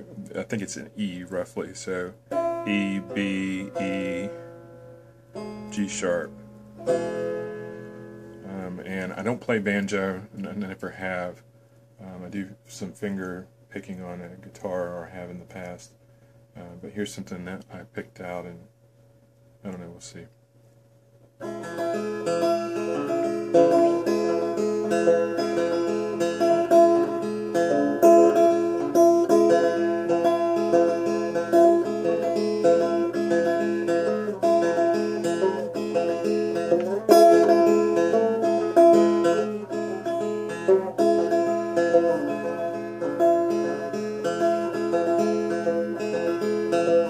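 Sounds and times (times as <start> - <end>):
banjo fingerpicked tune: 0.0 - 11.4, 21.4 - 47.0.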